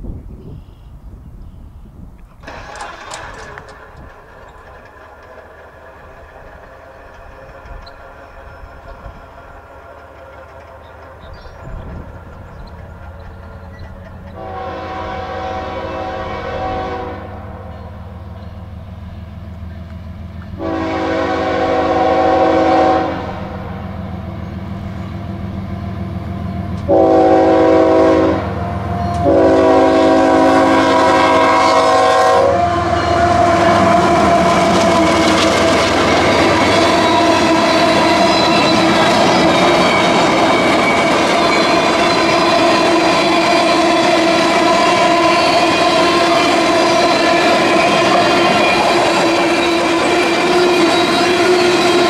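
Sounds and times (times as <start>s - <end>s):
freight cars rumbling and clattering: 1.1s - 14.5s, 32.7s - 52.0s
locomotive air horn: 2.4s - 3.8s, 14.3s - 17.7s, 20.6s - 23.9s, 26.7s - 52.0s
diesel engine drone: 2.4s - 14.6s.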